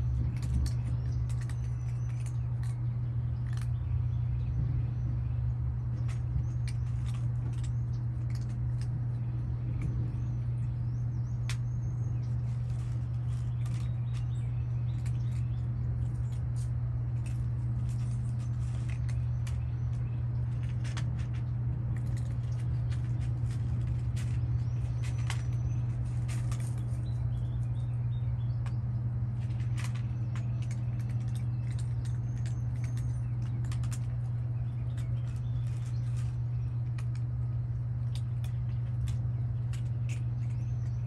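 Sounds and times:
cats chewing and nudging bowls: 0.0s - 41.0s
low hum: 0.0s - 41.0s.

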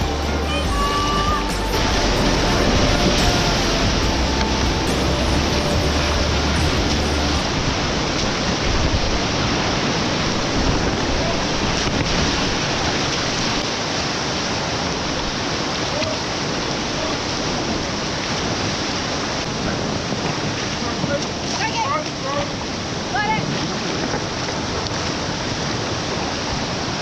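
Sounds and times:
background music: 0.0s - 7.5s
river water rushing: 0.0s - 27.0s.

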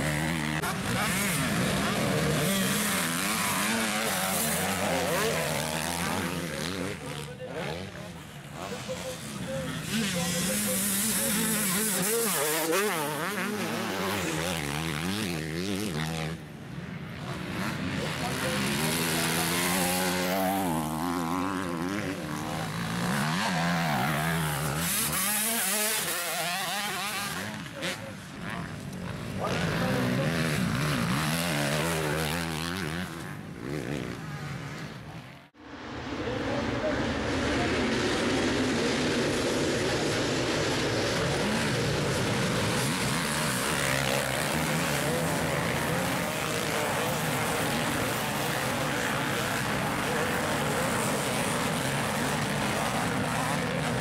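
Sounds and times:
motocross engines revving: 0.0s - 35.5s, 36.3s - 54.0s.

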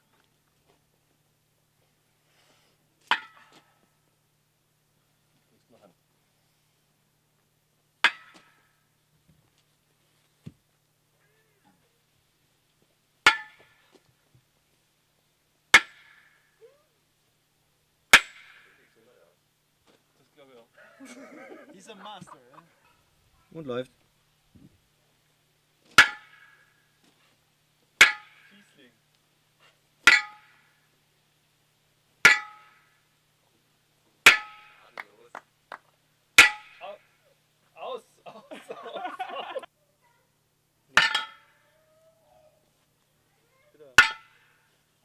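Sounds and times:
sledgehammer clanging on metal post: 8.0s - 8.7s, 13.3s - 13.9s, 15.7s - 16.4s, 18.1s - 19.0s, 25.9s - 26.8s, 28.0s - 28.6s, 30.0s - 30.7s, 32.2s - 32.9s, 34.3s - 34.9s, 36.4s - 36.8s, 40.9s - 41.6s, 44.0s - 44.5s.

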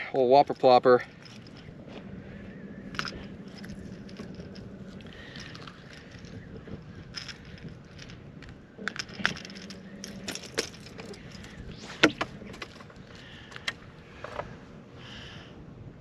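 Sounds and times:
light metal clicks and clinks: 0.0s - 1.7s, 2.9s - 8.2s, 8.8s - 11.6s.

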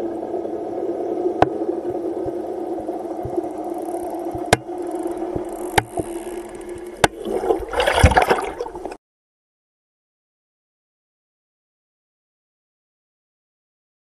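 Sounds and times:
underwater hum: 0.0s - 9.0s
wave breaking underwater: 4.3s - 9.0s.

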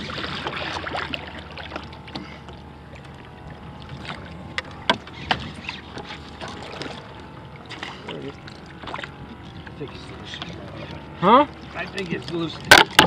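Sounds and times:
waves lapping against kayak hulls: 0.0s - 13.0s
sharp knocks and clicks: 12.7s - 13.0s.

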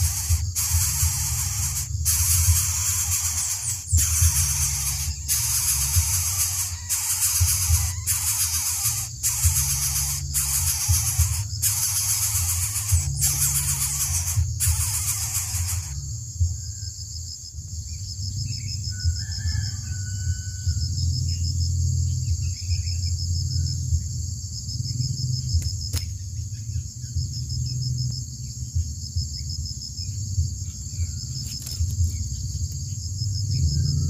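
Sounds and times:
faint bird chirps: 0.0s - 17.0s
pulsing insect chorus: 0.0s - 34.0s.

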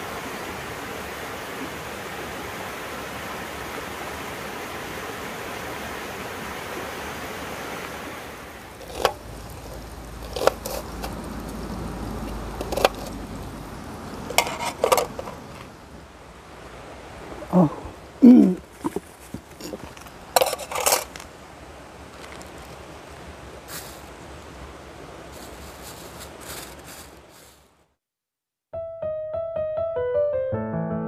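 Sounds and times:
stream rushing over rocks: 0.0s - 27.7s
food packaging handled: 8.8s - 11.6s, 12.6s - 13.2s, 14.3s - 15.7s, 18.6s - 21.3s, 22.1s - 22.8s, 25.3s - 27.6s
cookware clattering: 14.3s - 15.7s, 19.7s - 21.2s.

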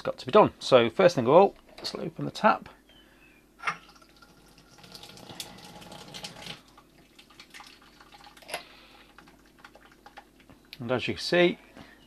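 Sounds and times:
liquid trickling into a bucket: 3.8s - 10.5s.

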